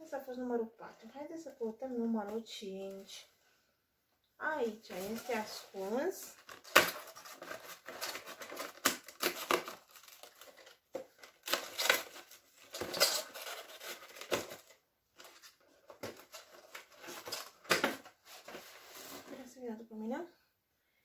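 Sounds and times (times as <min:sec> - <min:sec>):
cardboard box scraping and ripping: 0:18.2 - 0:19.5.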